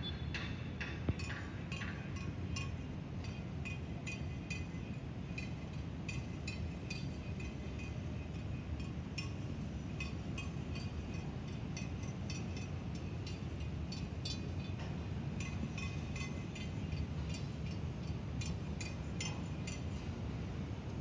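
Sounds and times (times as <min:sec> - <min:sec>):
high clinking chirps: 0:03.4 - 0:20.1.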